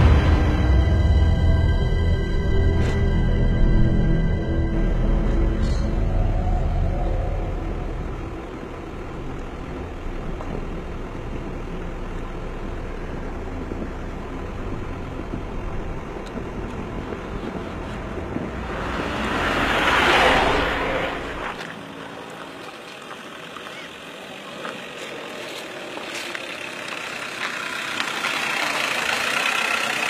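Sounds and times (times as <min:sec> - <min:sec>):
jeep engine and road rumble: 0:00.0 - 0:30.0
jeep passing close by: 0:14.6 - 0:30.0.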